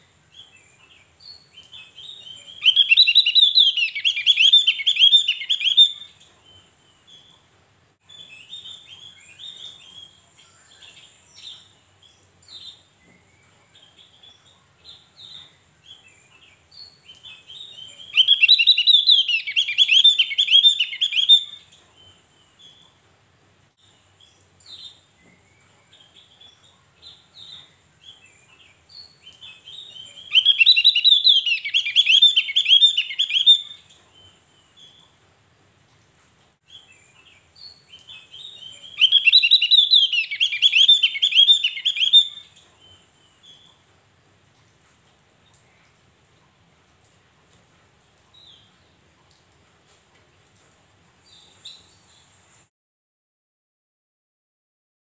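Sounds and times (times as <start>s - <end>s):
bird warbling song: 0.0s - 7.5s, 8.1s - 23.0s, 23.8s - 35.2s, 36.7s - 43.8s
bird chirps: 0.0s - 23.0s, 23.8s - 35.2s, 36.7s - 43.8s.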